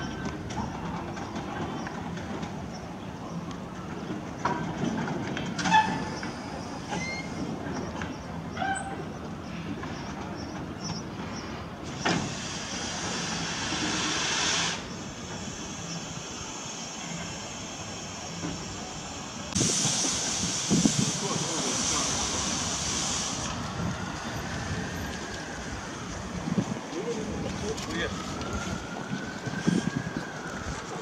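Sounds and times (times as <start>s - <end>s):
short squeaks: 6.9s - 7.4s
steam hissing: 11.9s - 25.0s.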